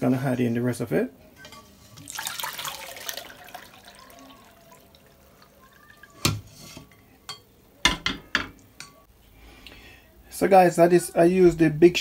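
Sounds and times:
liquid dripping into a bowl: 0:02.0 - 0:06.3.

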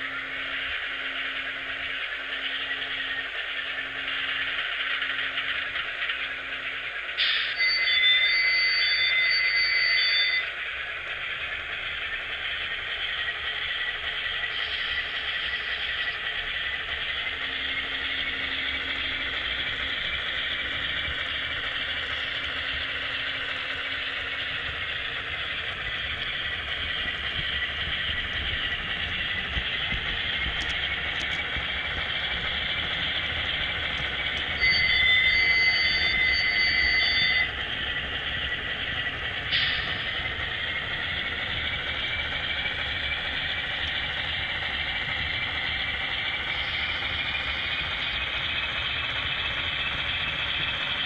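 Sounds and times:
wavering high squeal: 0:00.0 - 0:10.6, 0:13.2 - 0:51.0
model train rushing on track: 0:00.0 - 0:51.0
model locomotive horn: 0:34.6 - 0:37.5.

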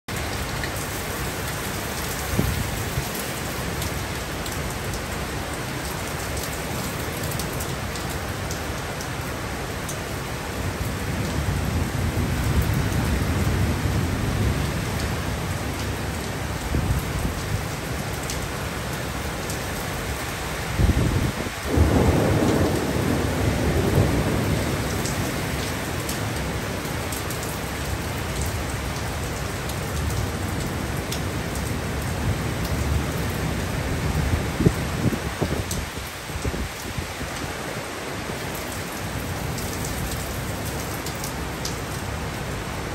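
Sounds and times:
heavy rain pouring: 0:00.1 - 0:42.9
thunder rumbling: 0:20.8 - 0:27.1.

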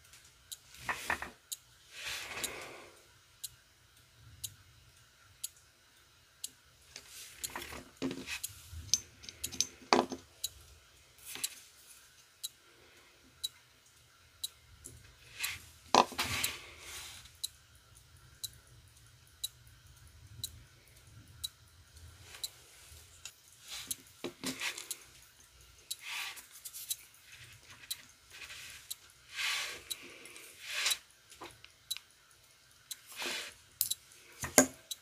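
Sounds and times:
clothes dryer humming: 0:00.0 - 0:03.4, 0:04.0 - 0:34.9
metal tools tapping and scraping: 0:07.5 - 0:10.2
faint ticking click: 0:31.6 - 0:33.0.

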